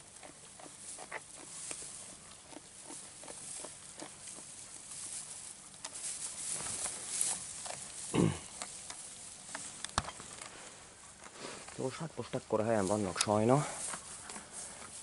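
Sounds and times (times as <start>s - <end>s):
sheep chewing clicks: 0.0s - 5.0s, 5.6s - 10.5s
hay rustling: 0.7s - 15.0s.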